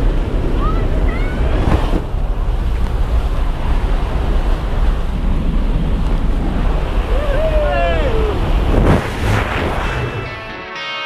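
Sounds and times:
air rushing buffeting microphone: 0.0s - 10.5s.

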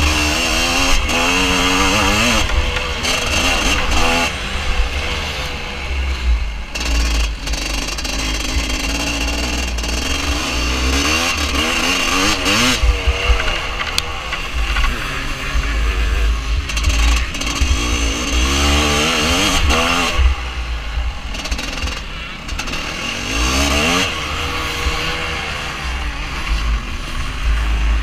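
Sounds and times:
motorcycle engine revving: 0.0s - 28.0s
wind rumbling on microphone: 11.4s - 22.7s.

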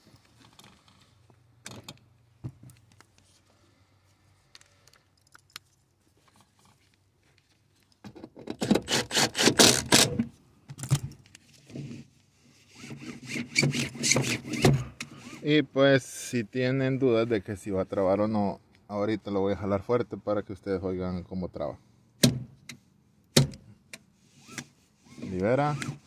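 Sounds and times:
seatbelt webbing scraping: 8.8s - 10.2s, 11.4s - 15.5s, 24.1s - 26.0s.

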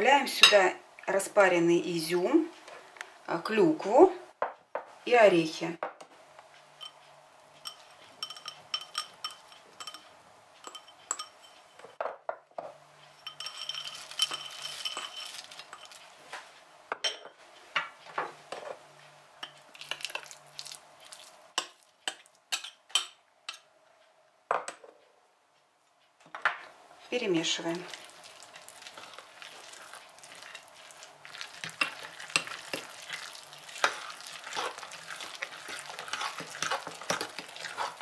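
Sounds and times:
china bowls and spoon clinking on glass: 6.8s - 7.0s, 7.6s - 12.0s, 13.1s - 16.0s, 33.8s - 38.0s
scraping into batter: 28.0s - 38.0s.

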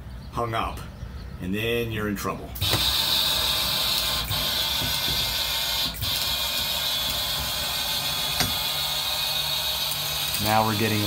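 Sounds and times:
shutter motor running: 2.6s - 11.0s.

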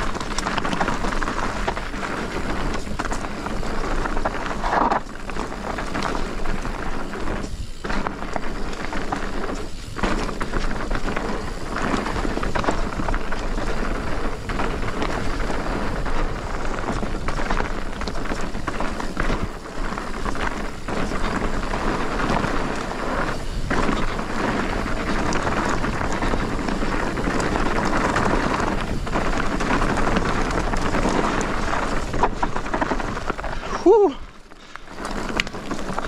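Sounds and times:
bike knocking over bumps: 0.0s - 36.0s
tyres rolling over dirt and stones: 0.0s - 36.0s.

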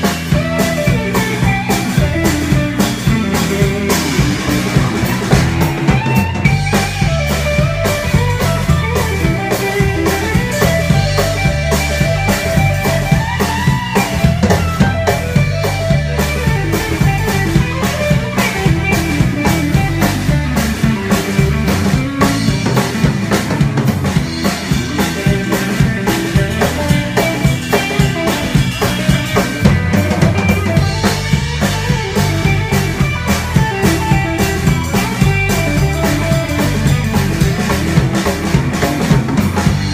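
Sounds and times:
drum kit beat with cymbals: 0.0s - 39.9s
electric guitar lead line: 0.0s - 39.9s
walking bass: 0.0s - 39.9s.

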